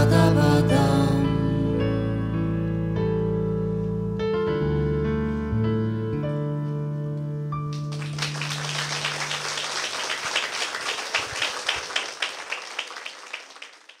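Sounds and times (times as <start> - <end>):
audience applause: 7.7 - 14.0
loud even claps: 7.7 - 14.0.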